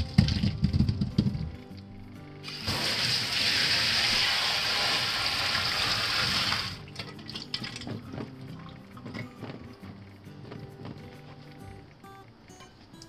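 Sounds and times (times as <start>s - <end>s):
potatoes clicking in strainer: 0.0s - 1.9s
tap water running into strainer: 2.4s - 9.9s.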